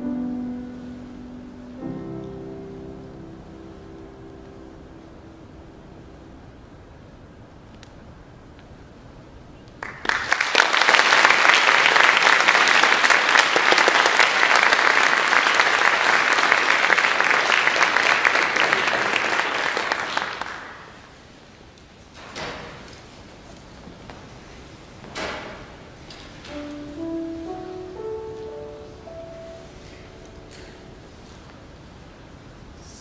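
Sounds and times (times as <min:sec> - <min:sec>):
audience applauding: 0:09.8 - 0:21.2.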